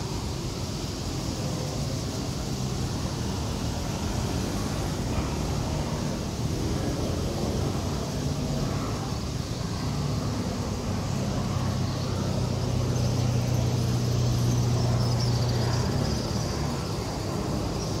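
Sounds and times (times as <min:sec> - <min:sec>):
street traffic: 0:00.0 - 0:18.0
vehicle engine humming: 0:00.0 - 0:18.0.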